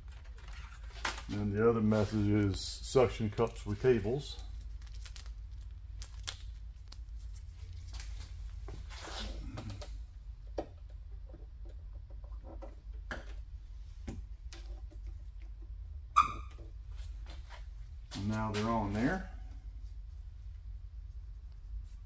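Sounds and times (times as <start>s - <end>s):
low steady hum: 0.0s - 22.0s
plastic rustling: 3.3s - 9.6s.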